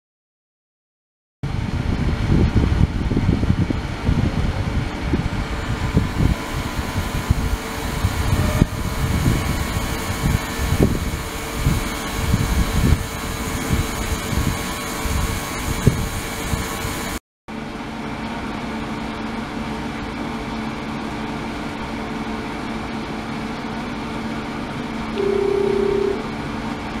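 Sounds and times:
rumbling of rippling liquid: 1.5s - 16.8s
ultrasonic cleaner humming: 4.8s - 17.2s, 25.1s - 26.6s
short high tone: 5.6s - 9.5s, 25.2s - 26.3s.

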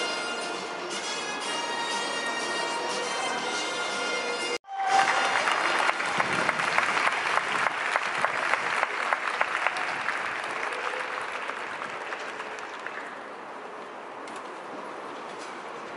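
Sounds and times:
spectators applauding: 4.7s - 13.2s.

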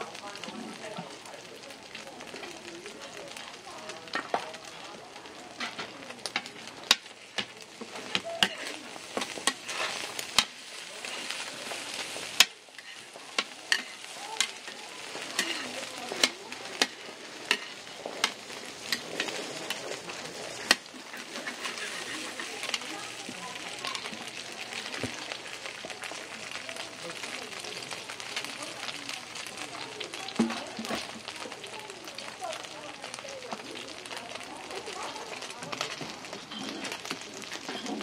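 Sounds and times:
batter sizzling on a griddle: 0.0s - 38.0s
metal spatula scraping griddle: 5.6s - 23.2s, 36.3s - 38.0s.

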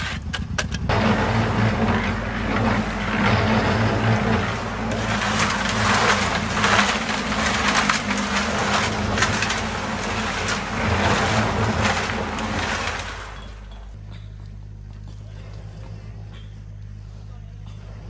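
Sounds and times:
concrete churning in mixer drum: 0.8s - 14.2s
mixer motor hum: 0.8s - 17.0s.

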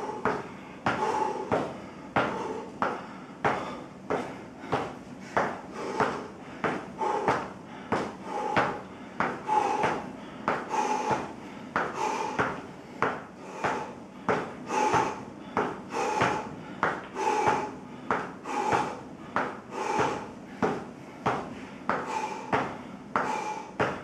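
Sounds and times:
feet thudding on foam mats: 0.0s - 24.0s.

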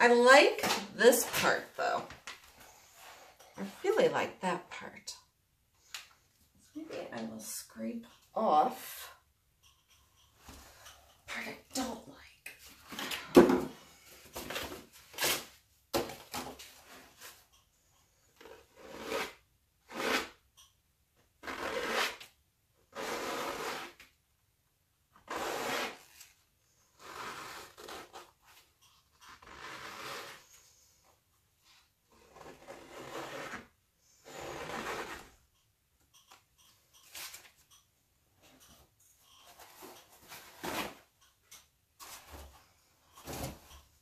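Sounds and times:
scraper dragged across wet paint: 26.9s - 28.2s, 29.3s - 30.7s, 31.7s - 35.4s.

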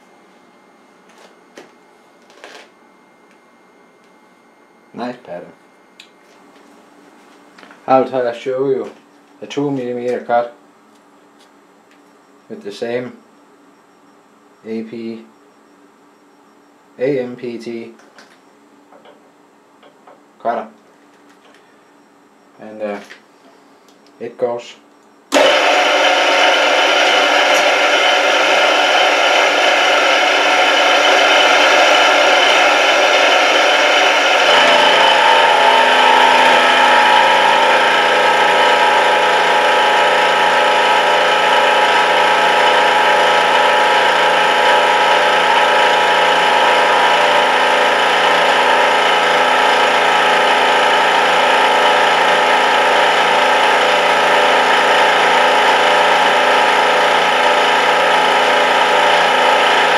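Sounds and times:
milling machine cutting steel: 25.3s - 59.9s.

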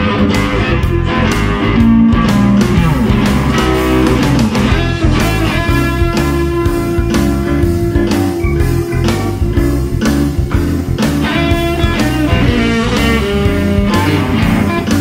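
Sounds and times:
bass: 0.0s - 15.0s
electric guitar playing: 0.0s - 15.0s
steady drum beat: 0.0s - 15.0s.

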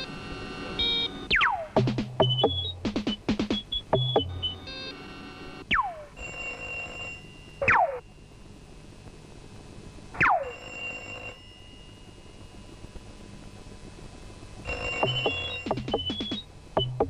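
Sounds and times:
electronic telephone ringing: 6.2s - 7.7s, 10.4s - 12.7s, 14.6s - 16.4s.

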